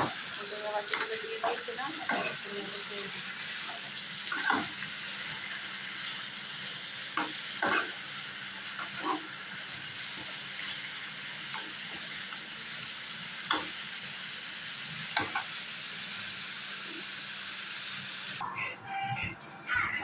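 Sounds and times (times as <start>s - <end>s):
vegetables sizzling in oil: 0.0s - 18.4s
spatula scraping a pan: 3.6s - 4.8s.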